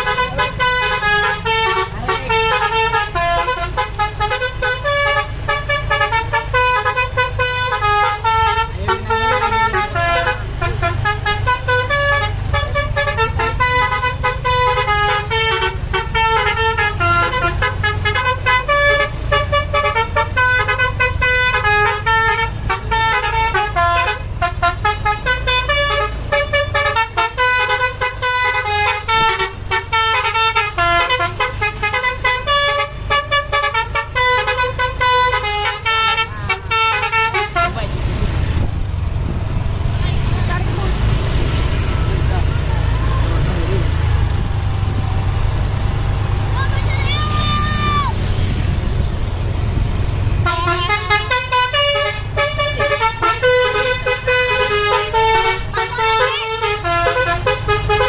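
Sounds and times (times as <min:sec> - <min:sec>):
musical bus horn melody: 0:00.0 - 0:38.0, 0:50.3 - 0:58.0
bus engine rumble: 0:00.0 - 0:58.0.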